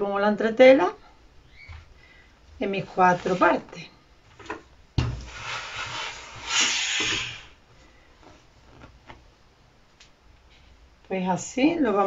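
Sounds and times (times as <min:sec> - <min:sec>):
steam iron hissing: 0:05.3 - 0:07.6.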